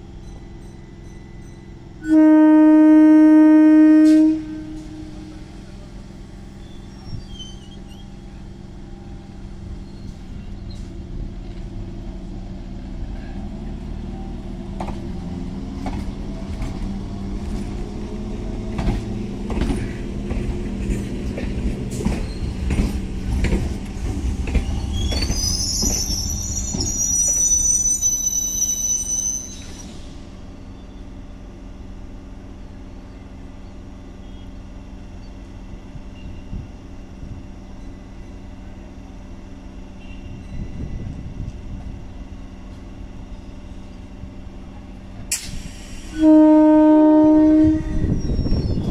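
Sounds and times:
high brake squeal: 6.5 - 8.4, 9.7 - 11.0, 22.1 - 22.7, 24.6 - 31.1, 40.0 - 40.9, 47.9 - 48.9
train wheels clacking on rail joints: 14.7 - 17.9, 18.5 - 26.1.

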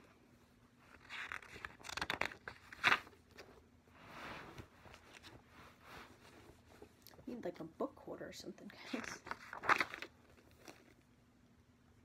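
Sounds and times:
paper pages rustling: 0.8 - 3.6, 4.4 - 7.0, 8.8 - 11.0.

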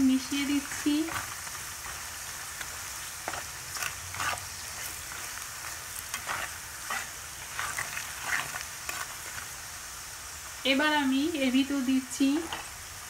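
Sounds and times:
food sizzling in oil: 0.0 - 13.0
metal spatula scraping pan: 2.6 - 9.5.

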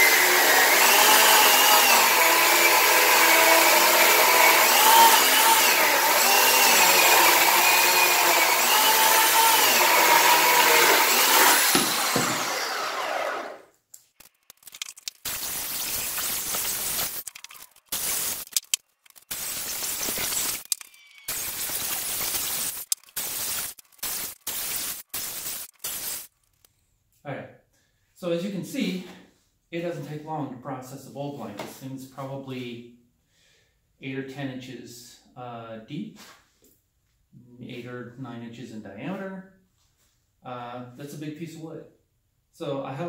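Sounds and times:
electric chainsaw cutting log: 0.0 - 13.7, 15.2 - 26.3
wood pieces scraping and knocking: 14.2 - 15.3, 16.0 - 24.1.

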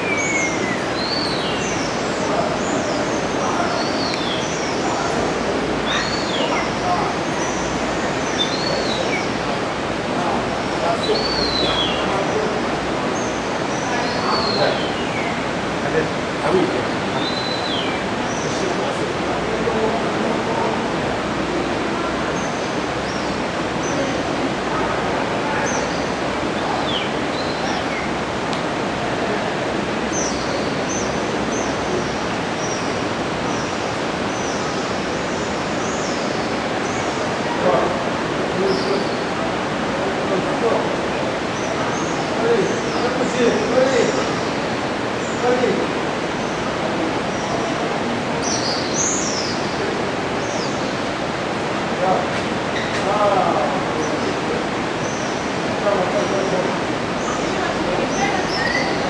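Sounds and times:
swallows chirping: 0.0 - 9.6, 10.2 - 19.8, 30.0 - 39.4, 40.7 - 59.0
flowing water rushing: 0.0 - 59.0.

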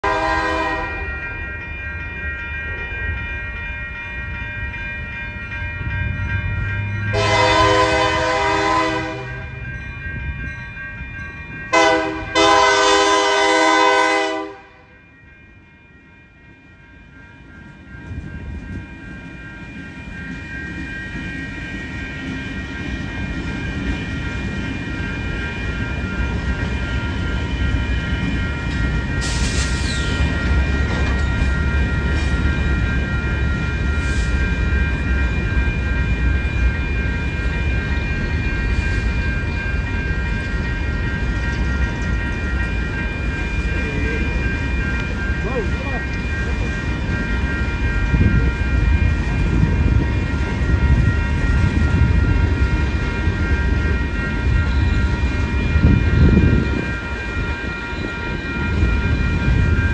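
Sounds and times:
locomotive air horn: 0.0 - 1.0, 7.1 - 9.5, 11.7 - 14.8
crossing bells ringing: 0.0 - 59.9
train rumble: 0.0 - 59.9.

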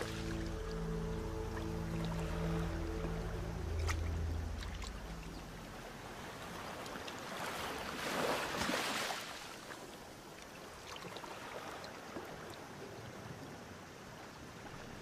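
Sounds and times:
seawater splashing over rocks: 6.0 - 12.5.

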